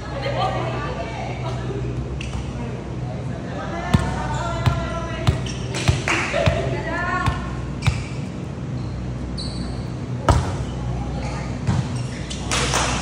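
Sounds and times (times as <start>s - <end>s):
high squeak: 8.8s - 10.0s.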